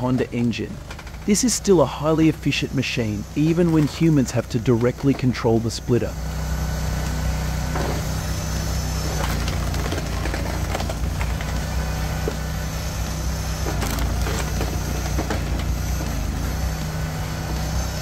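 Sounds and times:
engine running: 0.0s - 18.0s
wood cracking and splintering: 0.1s - 1.3s, 9.1s - 12.6s.

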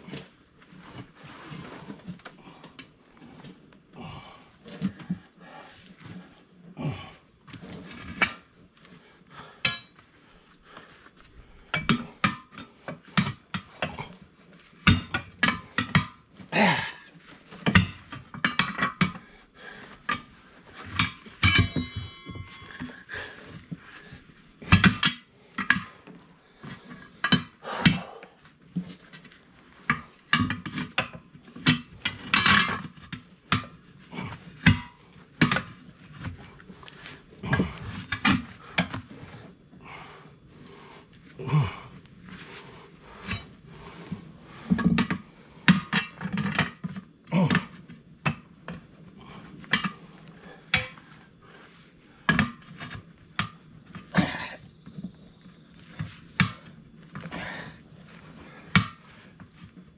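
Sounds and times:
tire irons clanking on metal rim: 9.4s - 10.0s, 11.6s - 28.2s, 28.8s - 40.0s, 42.3s - 59.8s.

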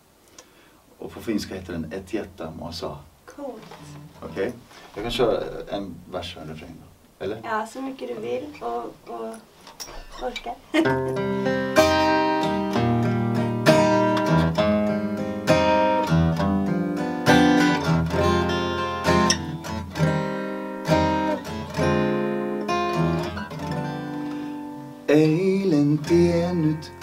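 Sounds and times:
acoustic guitar strumming chords: 10.8s - 27.0s.

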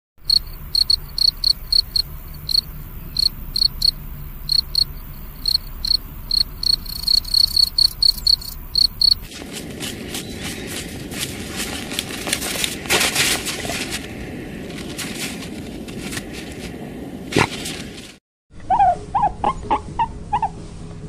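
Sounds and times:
cricket chirping: 0.2s - 9.3s.

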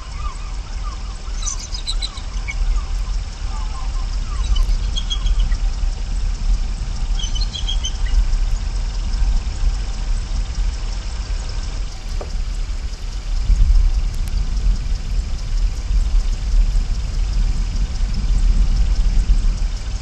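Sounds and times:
faint high bird chirps: 0.0s - 5.9s, 7.0s - 8.4s
rushing outdoor noise with low rumble: 0.0s - 20.0s.

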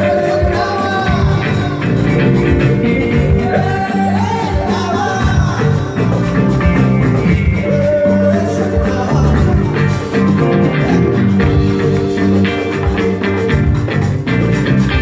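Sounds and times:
person singing: 0.0s - 11.2s
congas: 0.0s - 15.0s
drum kit: 0.0s - 15.0s
electric guitars: 0.0s - 15.0s
steady bass line: 0.0s - 15.0s.

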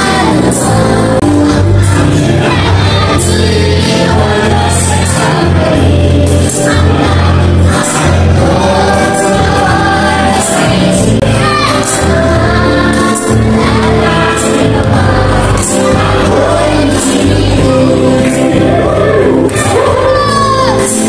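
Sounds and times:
amplified backing track with beat: 0.0s - 21.0s
group singing a praise song: 0.0s - 21.0s.

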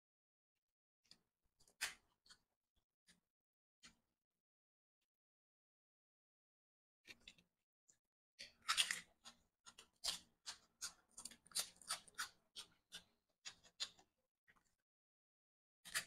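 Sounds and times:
person chewing crunchy vegetables: 8.4s - 14.0s.

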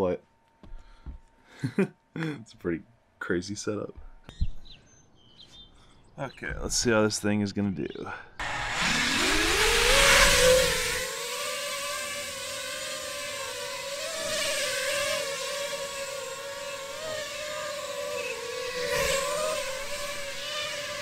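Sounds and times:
drone propellers whining: 8.4s - 21.0s.

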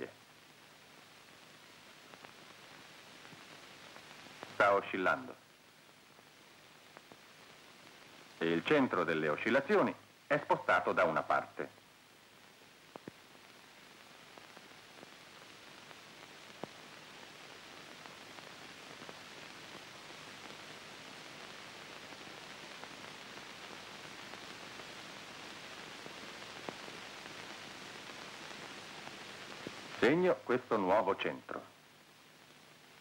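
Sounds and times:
film soundtrack hiss: 0.0s - 33.0s
faint clicks: 12.9s - 13.2s.

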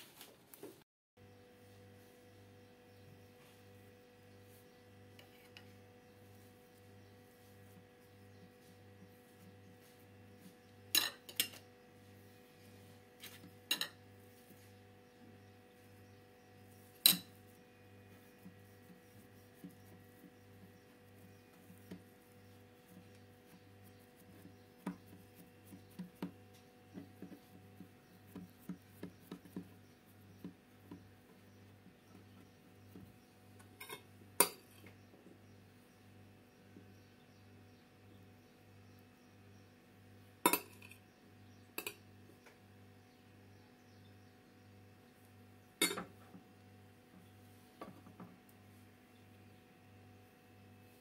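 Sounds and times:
fingers tapping on pastry: 18.9s - 31.5s.

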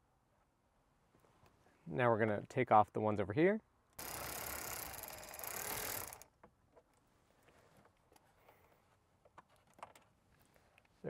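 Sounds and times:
ratchet wrench clicking: 4.0s - 6.2s.

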